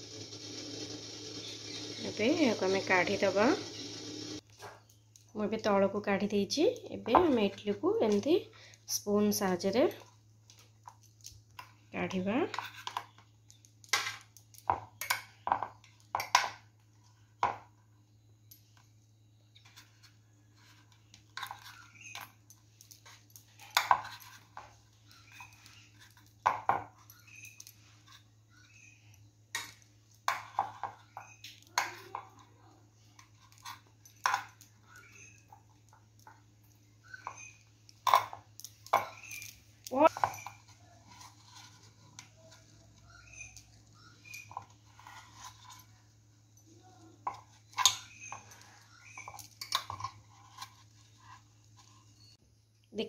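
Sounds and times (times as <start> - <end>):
spoon scraping metal plate: 39.0 - 46.0.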